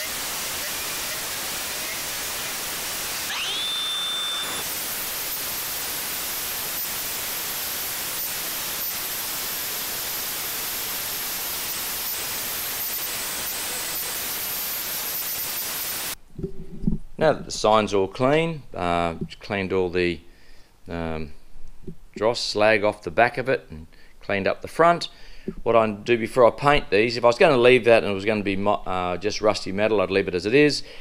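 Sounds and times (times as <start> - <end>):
angle grinder grinding steel: 0.0 - 16.2.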